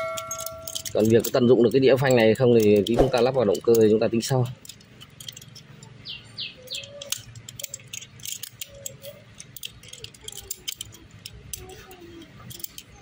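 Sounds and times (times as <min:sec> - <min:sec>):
metal tools clinking on bolts: 0:00.0 - 0:13.0
bird chirping: 0:05.7 - 0:07.8.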